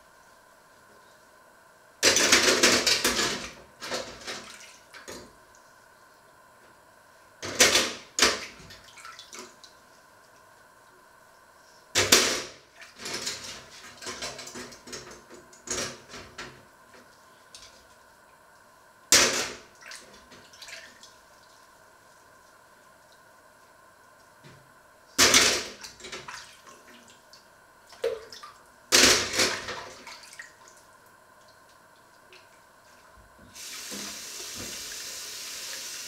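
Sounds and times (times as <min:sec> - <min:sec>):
tap water splashing into sink: 0:33.4 - 0:35.0.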